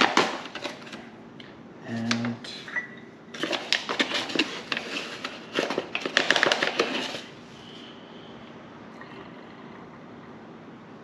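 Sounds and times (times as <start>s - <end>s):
paper bag crinkling and rustling: 3.4s - 7.3s.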